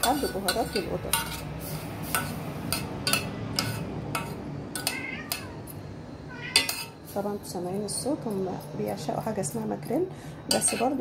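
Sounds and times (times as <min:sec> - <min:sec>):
metal spoon clinking on pot: 0:00.0 - 0:01.5, 0:02.1 - 0:05.5, 0:06.5 - 0:07.0, 0:10.5 - 0:11.0
cats meowing: 0:04.8 - 0:07.0.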